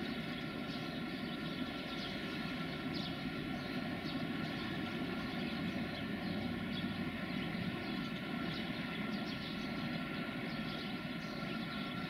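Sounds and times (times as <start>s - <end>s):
electric locomotive motors humming: 0.0s - 12.0s.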